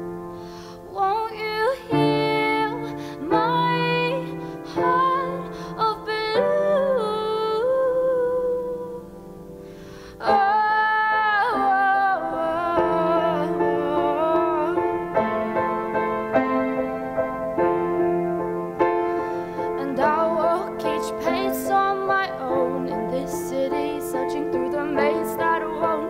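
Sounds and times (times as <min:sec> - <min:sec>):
acoustic piano: 0:00.0 - 0:26.0
woman singing a ballad: 0:00.4 - 0:16.4, 0:19.2 - 0:26.0.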